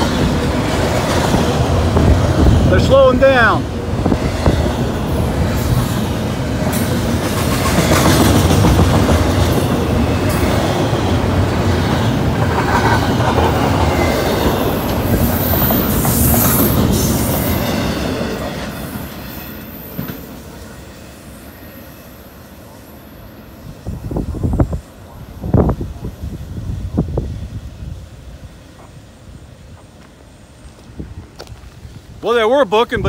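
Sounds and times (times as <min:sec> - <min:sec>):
freight train wheels clattering: 0:03.7 - 0:20.4.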